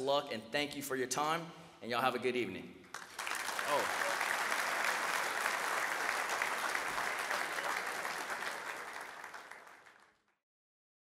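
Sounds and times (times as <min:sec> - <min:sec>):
audience applauding: 0:02.9 - 0:10.4.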